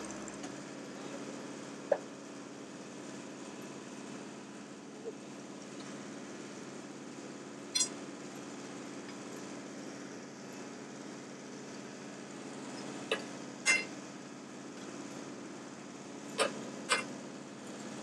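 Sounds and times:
drill rig engine running: 0.0s - 18.0s
steel rods clinking on metal: 7.8s - 8.0s, 12.8s - 13.9s, 16.4s - 17.1s.

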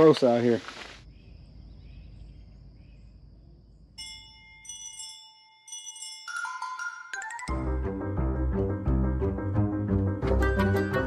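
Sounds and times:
ringing chime notes: 4.0s - 7.5s
intro music: 7.4s - 11.0s.

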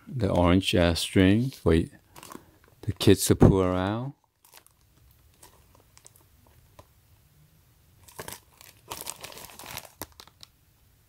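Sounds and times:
plastic film crinkling: 1.5s - 3.2s, 4.2s - 6.9s, 8.0s - 10.6s.

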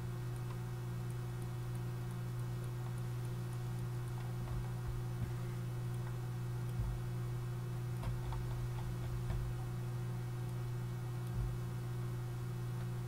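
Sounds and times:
low electrical hum: 0.0s - 13.0s
computer mouse clicking: 0.3s - 7.2s, 8.0s - 9.8s.

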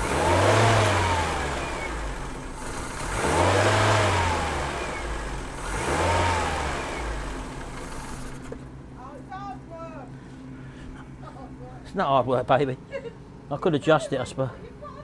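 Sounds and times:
car engine revving and idling: 0.0s - 8.9s.

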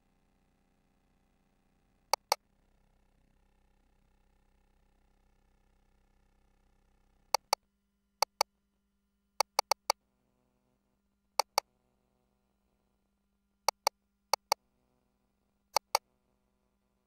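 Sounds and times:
faint steady hum: 0.0s - 17.0s
console key clicks: 2.2s - 2.4s, 9.4s - 10.0s, 11.4s - 11.6s, 13.7s - 14.6s, 15.8s - 16.0s.

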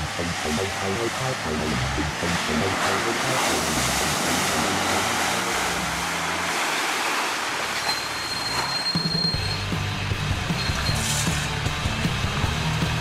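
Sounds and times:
off-road vehicle engine running: 0.0s - 7.9s, 9.3s - 13.0s
tyres splashing through mud: 1.7s - 9.6s.

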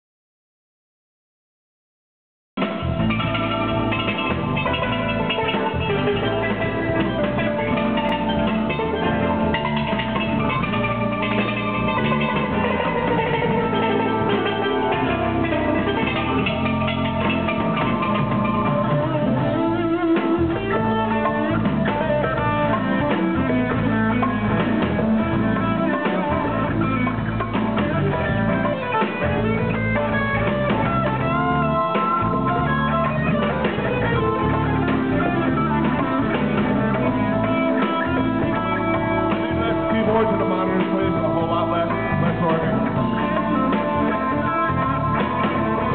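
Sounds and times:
electric guitar: 2.6s - 45.9s
live band playing: 2.6s - 45.9s.

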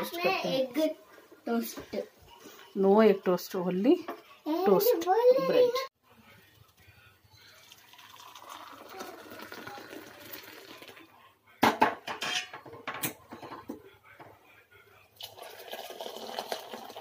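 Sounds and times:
coffee pouring into cup: 6.4s - 11.1s, 15.2s - 17.0s.

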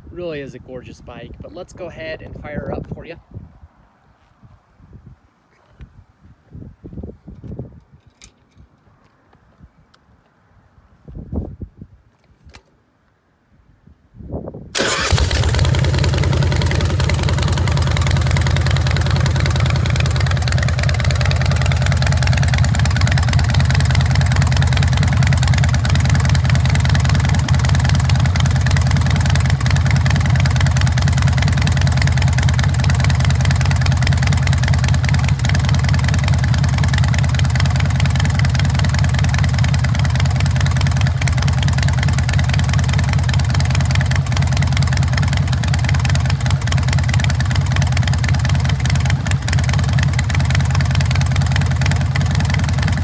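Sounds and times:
motorcycle engine starting and idling: 14.7s - 53.0s.

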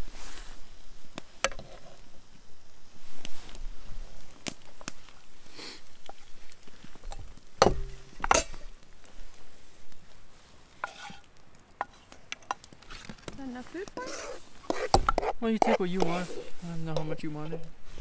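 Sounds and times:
wooden spoon scraping frying pan: 7.0s - 8.8s, 10.7s - 18.0s.

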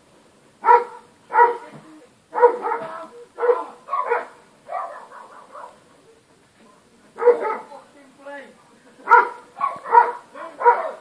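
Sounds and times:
dog barking: 0.6s - 1.7s, 2.3s - 5.8s, 7.2s - 7.7s, 9.1s - 11.0s.

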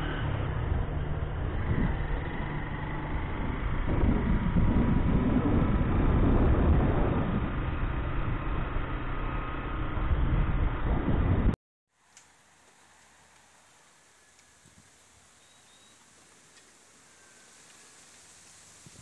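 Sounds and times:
motorcycle engine cruising: 0.0s - 11.5s
wind buffeting microphone: 1.4s - 2.5s, 3.1s - 11.6s, 17.1s - 19.0s.

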